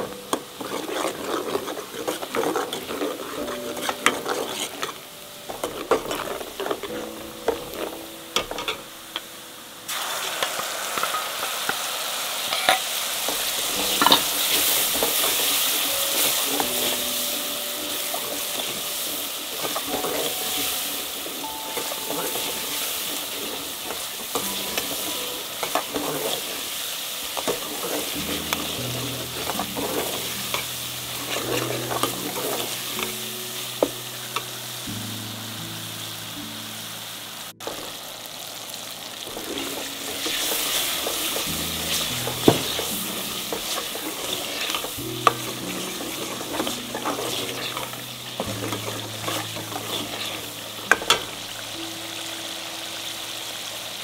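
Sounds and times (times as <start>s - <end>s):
metal ladle scraping a pot: 0.0s - 8.8s, 12.5s - 34.4s, 39.3s - 51.6s
loud sizzle in hot oil: 0.0s - 54.0s
onions frying in oil: 0.0s - 54.0s.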